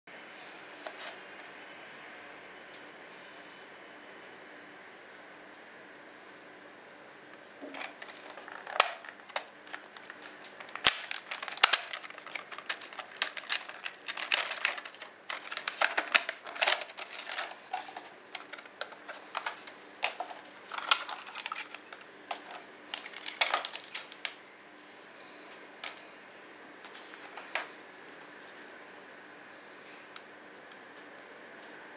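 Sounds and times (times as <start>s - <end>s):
plastic packaging crackling: 7.6s - 24.4s.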